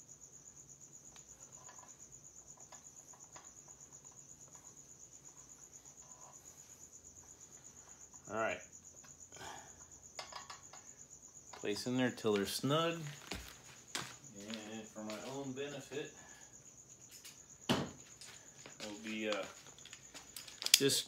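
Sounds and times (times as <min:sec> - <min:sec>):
cricket chirring: 0:00.0 - 0:21.0
faint clicks of parts handled: 0:18.1 - 0:21.0.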